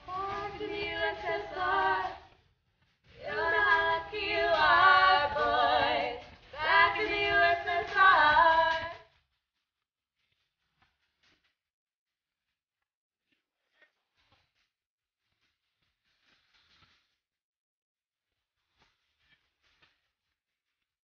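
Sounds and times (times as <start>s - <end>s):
woman singing with vibrato: 0.0s - 2.3s, 3.2s - 9.0s.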